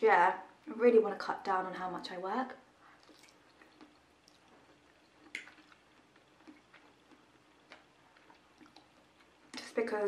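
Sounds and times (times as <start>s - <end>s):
chewing mouth clicks: 2.9s - 9.6s.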